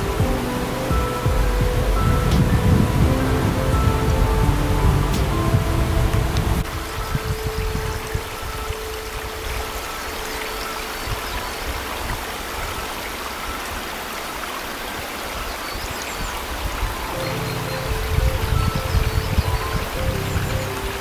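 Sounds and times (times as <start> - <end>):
faint background music: 0.0 - 14.7, 15.3 - 21.0
mountain stream rushing: 0.0 - 21.0.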